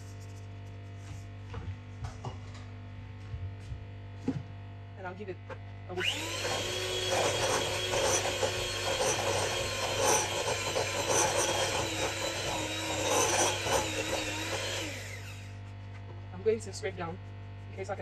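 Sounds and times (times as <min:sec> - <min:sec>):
electric hand mixer whine: 0:06.0 - 0:15.6.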